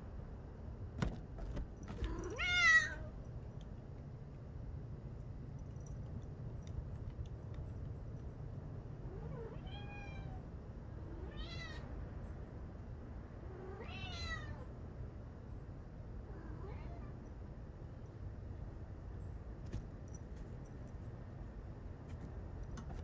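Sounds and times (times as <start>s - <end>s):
steady low hum: 0.0s - 23.0s
cat meowing: 2.0s - 3.1s, 9.1s - 10.4s, 11.1s - 11.9s, 13.6s - 14.7s, 16.3s - 17.2s.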